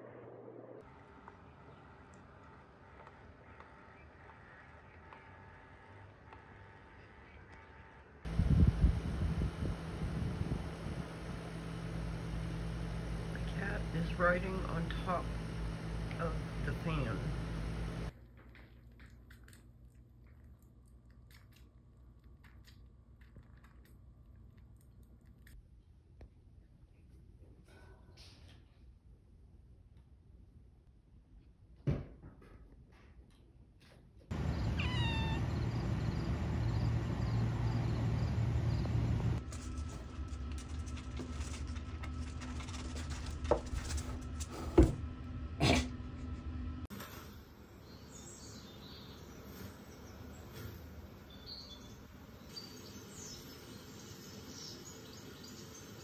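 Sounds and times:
low steady hum: 0.0s - 27.9s, 34.3s - 46.9s.

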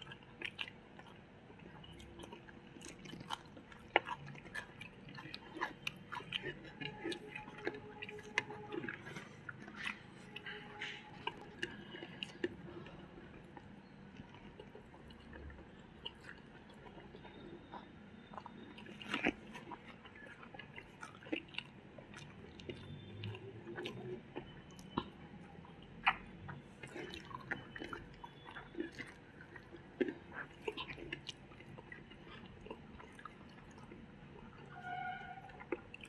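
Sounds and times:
mouth clicks and smacks: 0.0s - 34.7s
people chewing: 0.0s - 36.0s.

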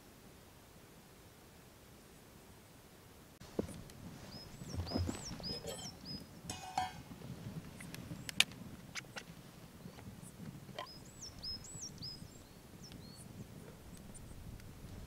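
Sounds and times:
glass bottle clinking: 5.5s - 7.0s
metal pan lid clicking: 6.5s - 7.0s.

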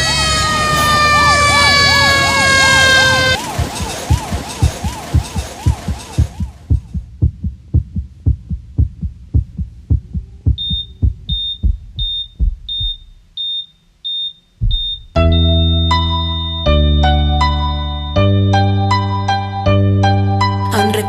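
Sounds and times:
siren: 0.0s - 6.6s
heartbeat thumping: 3.4s - 15.3s
patient monitor beeps: 10.5s - 15.2s
electric piano music: 15.2s - 21.0s.

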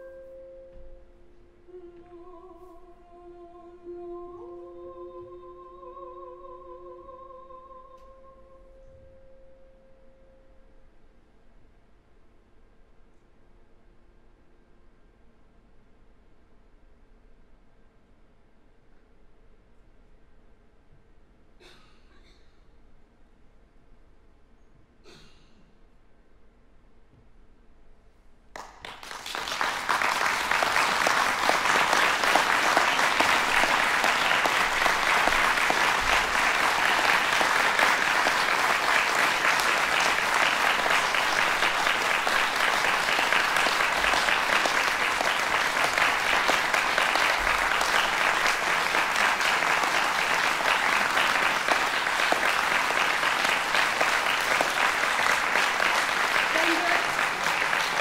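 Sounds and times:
audience applauding: 28.5s - 58.0s.

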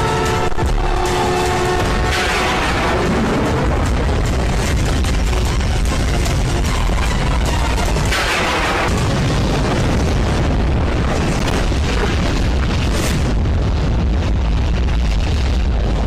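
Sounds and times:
background music score: 0.0s - 11.0s
booming explosions: 0.0s - 16.0s.

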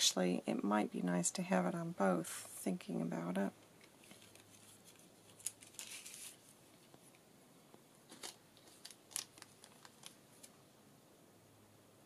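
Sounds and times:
paper and plastic rustling: 3.8s - 7.2s, 8.1s - 10.6s.

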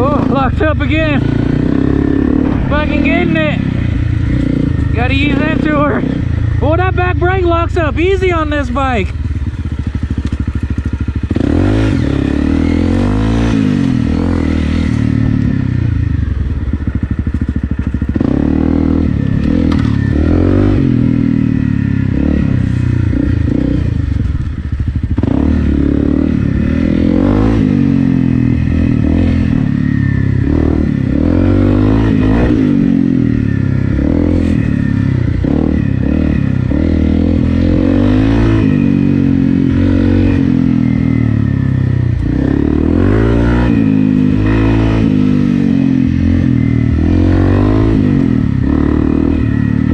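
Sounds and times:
motorcycle engine revving: 0.0s - 49.9s
bike knocks and rattles: 19.3s - 20.1s.

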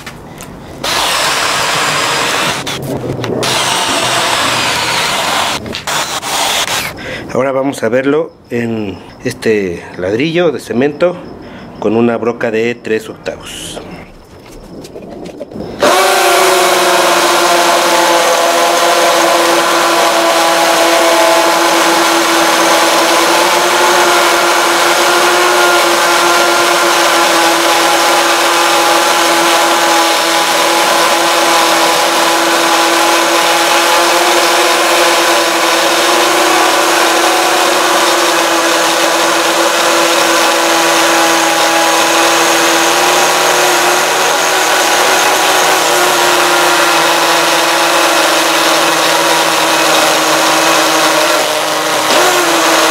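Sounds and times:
drill motor whining: 0.0s - 7.1s, 15.5s - 52.9s
drill bit grinding into block: 0.8s - 7.0s, 15.6s - 52.9s.

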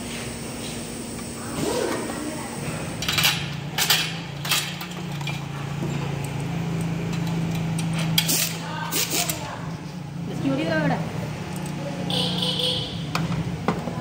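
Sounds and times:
metal tools clinking: 3.0s - 8.6s.

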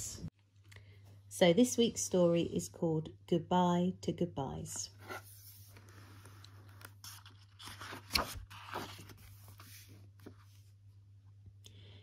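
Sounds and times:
book pages turning: 5.0s - 10.8s.

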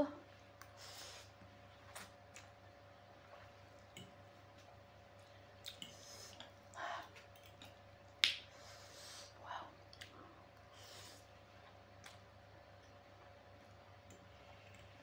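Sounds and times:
wet mouth clicks: 5.6s - 6.5s.

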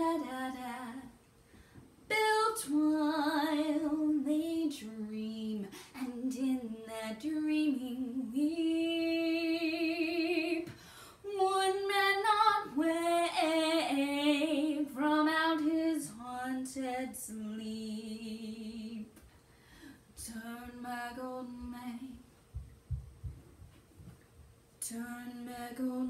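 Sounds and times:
girl singing unaccompanied: 0.0s - 1.2s, 2.1s - 10.7s
singer breathing: 10.7s - 11.2s, 19.4s - 20.1s.

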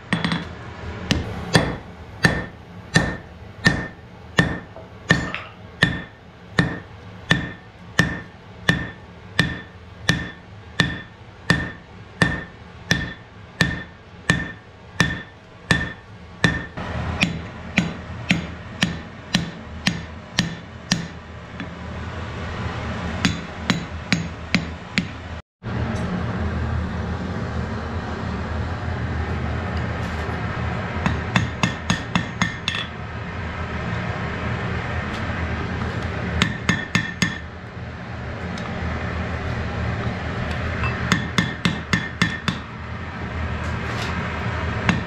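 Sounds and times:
hammer blows on anvil: 1.1s - 21.8s.

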